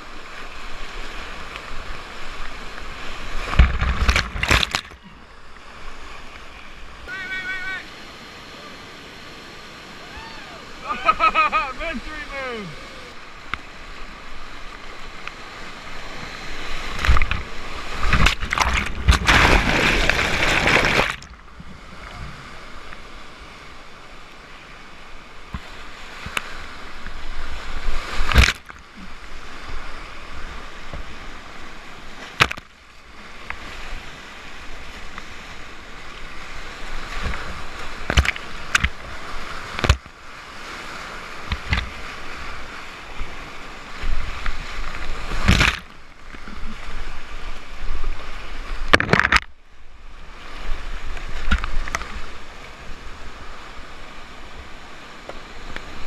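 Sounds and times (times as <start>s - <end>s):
paddle splashes: 0.2s - 8.0s, 9.8s - 23.8s, 24.5s - 49.6s
whitewater rapids rushing: 5.8s - 21.2s.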